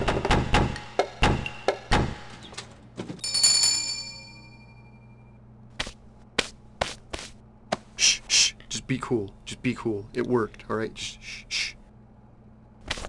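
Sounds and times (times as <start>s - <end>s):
bell ding: 3.2s - 5.4s.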